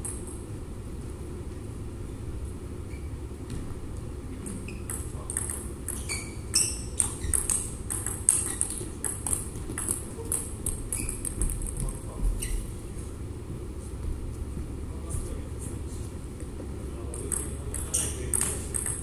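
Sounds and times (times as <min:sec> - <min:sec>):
steady low hum: 0:00.0 - 0:19.0
table tennis ball knocking: 0:04.4 - 0:12.0, 0:17.2 - 0:19.0.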